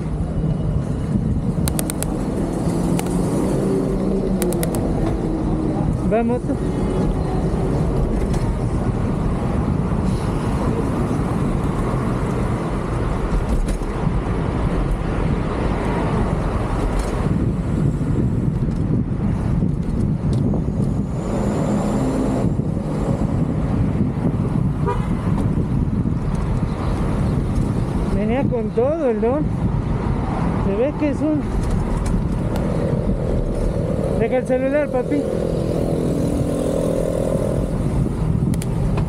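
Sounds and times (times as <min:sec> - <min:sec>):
road traffic: 0:00.0 - 0:39.0
wind rushing over microphone: 0:00.0 - 0:39.0
vehicle horn honking: 0:24.8 - 0:25.2.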